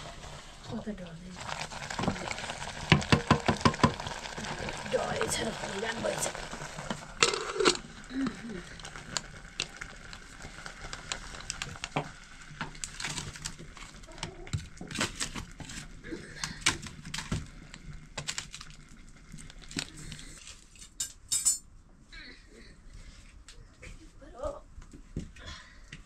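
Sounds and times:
utensils and pots clicking: 0:01.4 - 0:17.4, 0:19.5 - 0:21.6.

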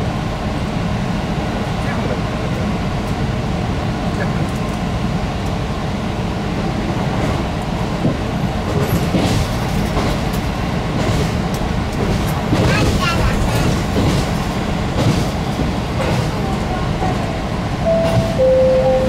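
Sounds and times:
railcar running rumble: 0:00.0 - 0:19.0.

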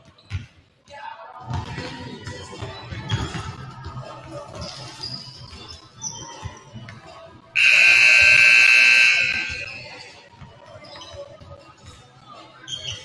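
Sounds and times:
loud electronic buzzer: 0:07.6 - 0:10.0.

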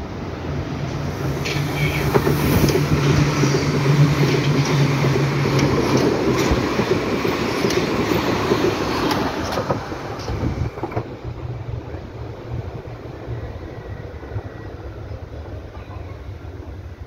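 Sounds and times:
train wheels rolling and clacking: 0:00.9 - 0:11.5.

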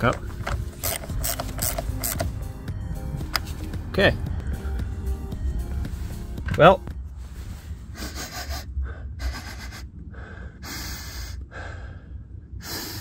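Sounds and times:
man sniffing: 0:07.9 - 0:09.9.

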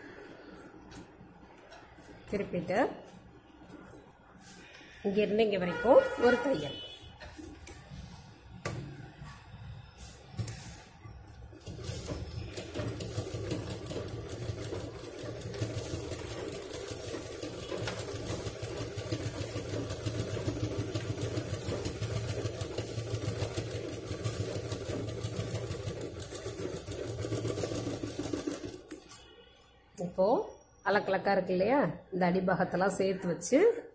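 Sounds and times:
sewing machine stitching: 0:11.4 - 0:29.2.

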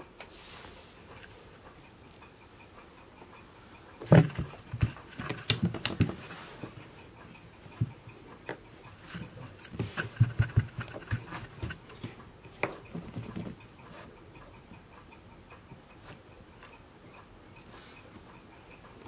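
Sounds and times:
toy moving over wooden floor: 0:04.0 - 0:14.2
cats scuffing on cardboard box: 0:09.1 - 0:12.2.

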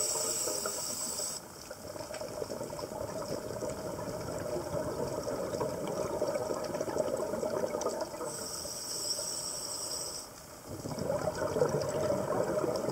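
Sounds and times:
regulator inhale hiss: 0:00.0 - 0:01.5, 0:08.3 - 0:10.4
underwater exhaust bubbles gurgling: 0:00.0 - 0:12.9.

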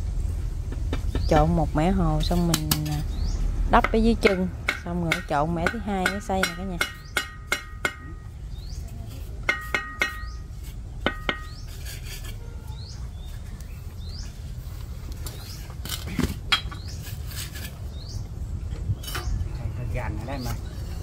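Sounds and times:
trowel tapping bricks: 0:02.2 - 0:03.0, 0:03.8 - 0:08.3, 0:09.4 - 0:12.4
trowel scraping metal basin: 0:09.5 - 0:13.3, 0:16.8 - 0:18.2.

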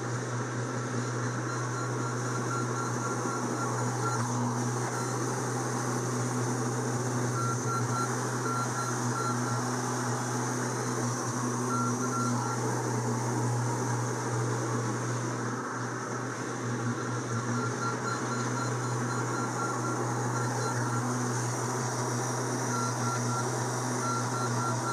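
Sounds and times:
high beeping: 0:01.2 - 0:05.3, 0:06.3 - 0:13.0, 0:17.4 - 0:24.9.

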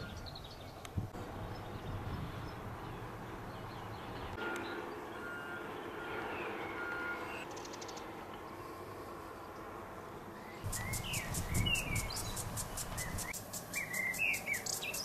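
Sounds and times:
bird-like chirps: 0:10.4 - 0:15.0.

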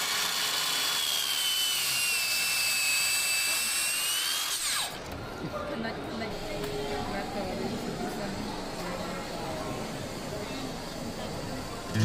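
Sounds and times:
mitre saw cutting wood: 0:00.0 - 0:05.0.

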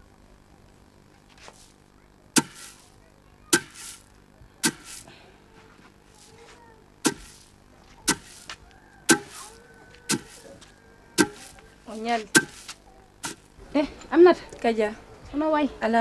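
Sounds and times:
sharp knocks with hissing tail: 0:02.4 - 0:02.8, 0:03.6 - 0:04.0.

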